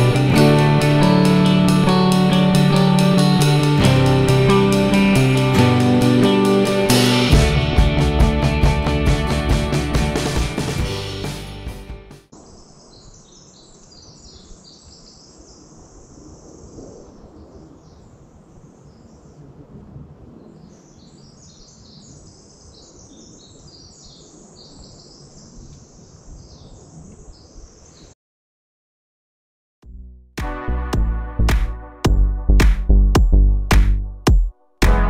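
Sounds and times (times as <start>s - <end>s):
music: 0.0s - 12.3s, 29.8s - 35.0s
birds chirping and singing: 12.4s - 19.4s, 20.4s - 28.1s.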